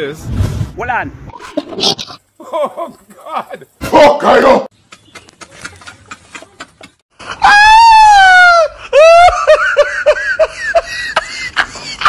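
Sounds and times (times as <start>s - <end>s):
man laughing shrilly: 7.2s - 12.0s.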